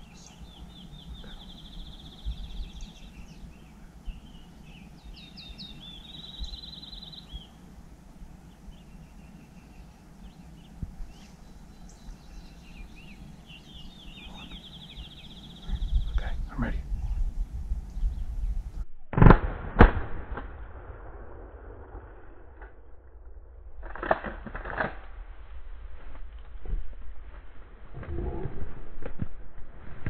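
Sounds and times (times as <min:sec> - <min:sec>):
songbird singing: 0:00.0 - 0:18.8.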